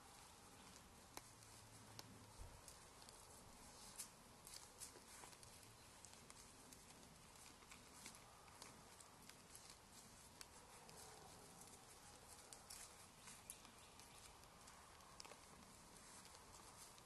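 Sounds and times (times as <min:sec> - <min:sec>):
faint steady hiss: 0:00.0 - 0:17.0
soft clicks and ticks: 0:00.0 - 0:17.0.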